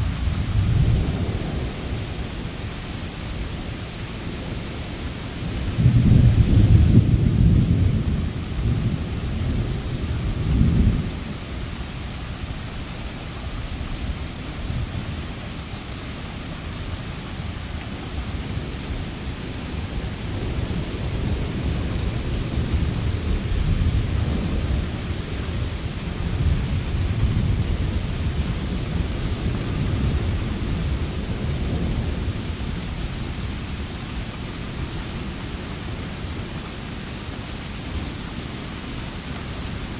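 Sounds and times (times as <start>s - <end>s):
thunder rumbling: 0.0s - 2.4s, 5.5s - 11.5s
steady rain: 0.0s - 39.9s.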